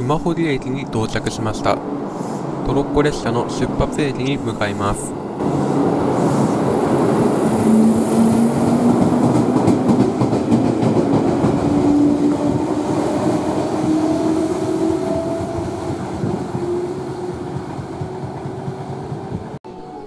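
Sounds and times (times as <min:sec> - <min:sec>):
train wheels rumbling: 0:00.0 - 0:19.6
wheels clacking over rail joints: 0:08.3 - 0:19.6.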